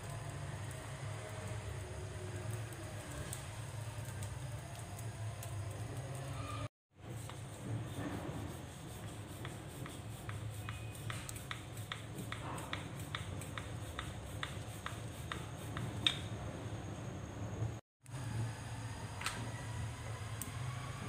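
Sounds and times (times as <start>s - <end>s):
rolling pin rubbing on mat: 7.1s - 16.0s.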